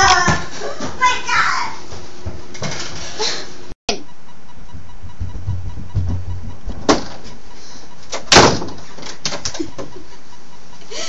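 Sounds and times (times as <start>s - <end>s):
wooden door banging: 8.3s - 8.8s.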